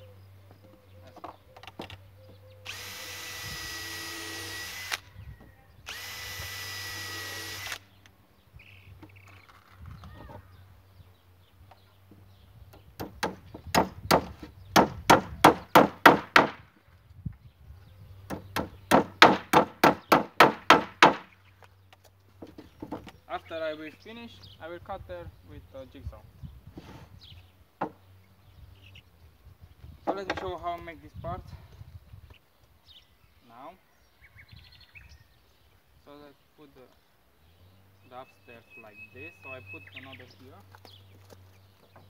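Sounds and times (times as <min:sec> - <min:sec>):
power drill whining: 0:02.6 - 0:05.1, 0:05.8 - 0:07.8.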